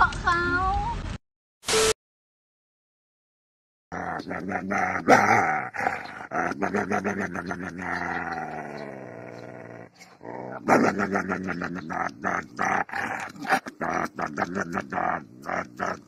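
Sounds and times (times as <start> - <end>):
dog growling and grumbling: 3.9 - 16.0.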